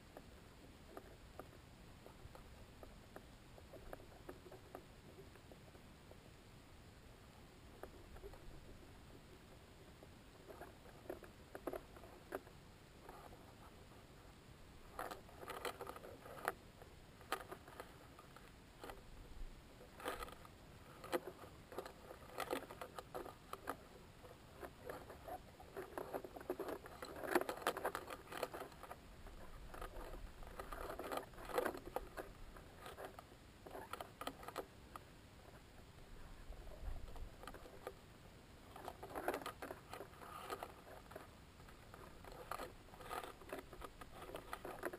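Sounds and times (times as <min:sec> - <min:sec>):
crackling and clicking: 0:00.0 - 0:06.3, 0:07.7 - 0:14.0, 0:14.8 - 0:19.1, 0:19.8 - 0:44.9
enclosure creaking and rubbing: 0:38.6 - 0:44.9.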